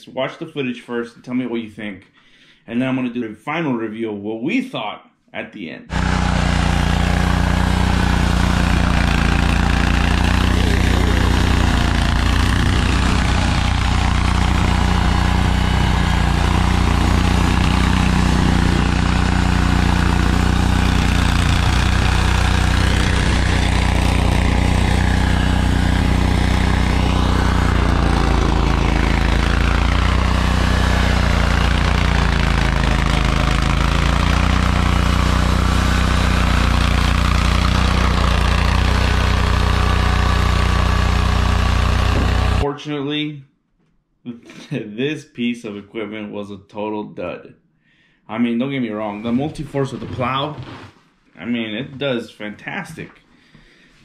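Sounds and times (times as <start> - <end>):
engine running: 5.9 - 42.6
snow blower working through snow: 5.9 - 42.6.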